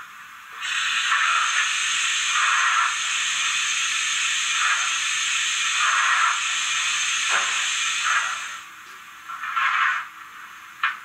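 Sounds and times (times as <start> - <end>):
model locomotive steam hiss: 0.5 - 8.7.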